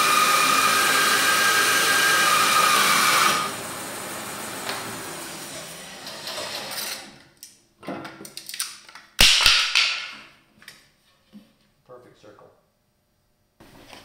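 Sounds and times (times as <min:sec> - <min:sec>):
bandsaw winding down: 0:00.0 - 0:07.2.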